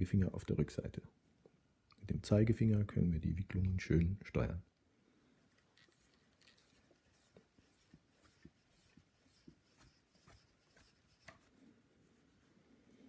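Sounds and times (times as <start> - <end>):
cord rubbing and ticking: 5.5 - 11.5.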